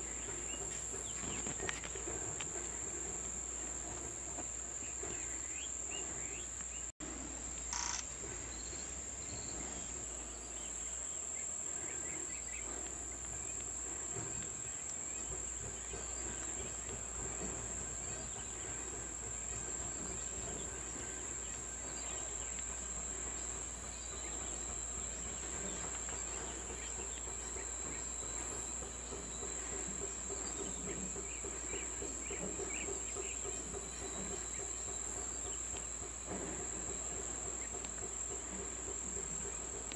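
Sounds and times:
high-pitched insect drone: 7.7s - 9.9s.

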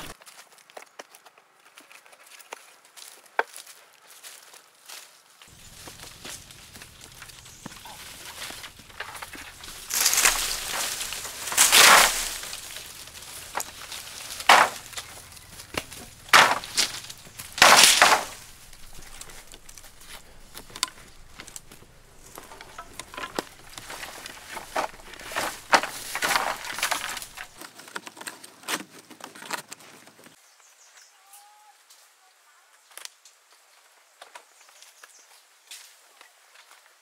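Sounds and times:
rustling: 5.5s - 27.9s
bamboo poles clattering: 5.5s - 29.9s
hollow knocks of bamboo: 5.8s - 27.5s.

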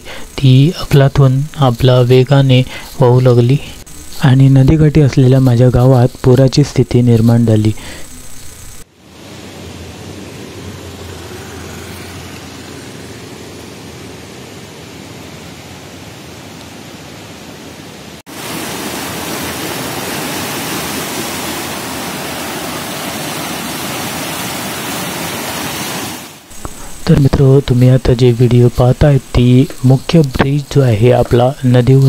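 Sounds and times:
river floodwater rushing: 18.0s - 26.5s.

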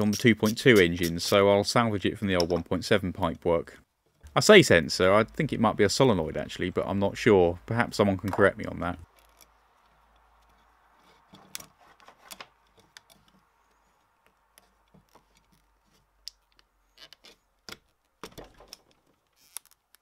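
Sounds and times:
metal parts clicking and knocking: 14.6s - 20.0s.

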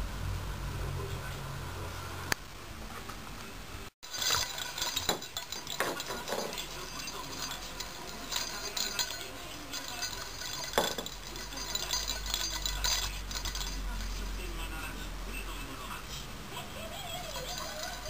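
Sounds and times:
bell in toy ball jingling: 4.0s - 14.6s, 17.0s - 18.0s.

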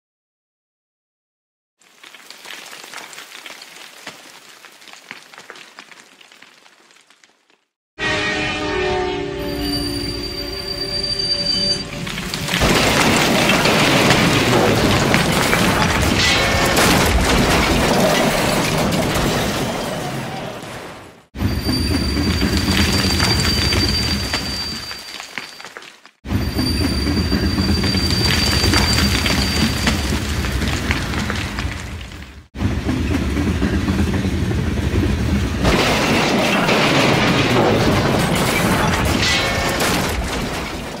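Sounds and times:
metallic screech: 8.0s - 12.3s, 21.4s - 25.0s, 26.3s - 29.9s
railcars crashing and crunching: 11.8s - 41.0s
loud crashing din: 12.0s - 24.3s
train rumbling: 21.4s - 24.7s, 26.3s - 39.8s.

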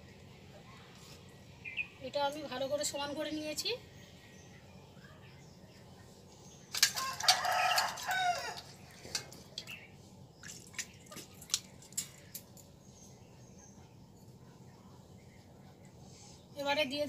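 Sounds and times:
rooster crowing: 6.9s - 8.7s.

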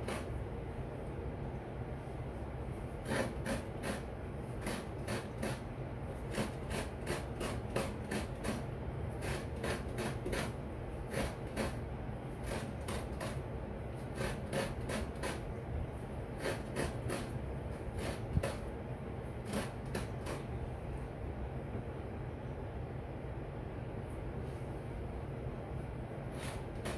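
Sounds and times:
coconut grating rasps: 0.0s - 0.4s, 3.0s - 15.5s, 16.3s - 18.7s, 19.4s - 20.5s, 26.3s - 26.9s.

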